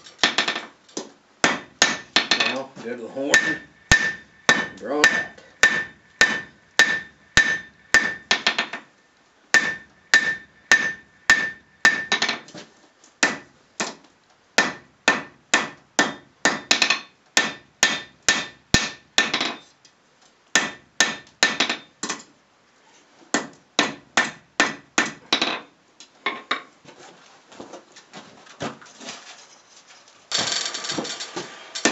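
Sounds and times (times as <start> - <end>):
hammer striking steel on anvil: 1.4 - 2.6, 3.2 - 8.8, 9.6 - 12.4, 14.6 - 19.6, 20.6 - 21.9.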